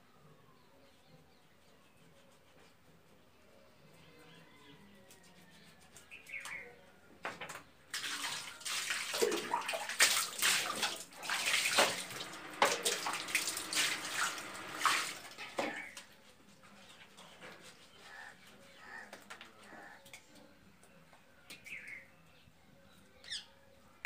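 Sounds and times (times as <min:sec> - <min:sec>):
water splashing on tiled floor: 0:07.9 - 0:16.0.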